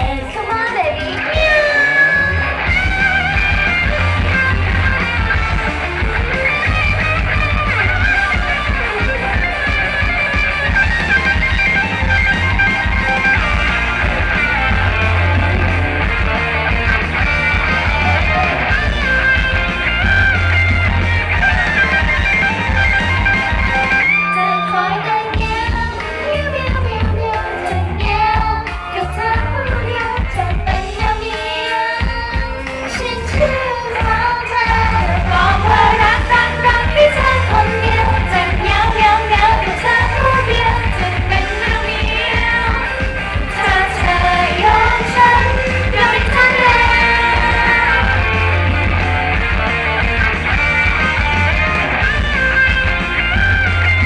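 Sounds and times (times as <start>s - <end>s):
pop song with female singing: 0.0s - 2.5s, 24.3s - 48.6s.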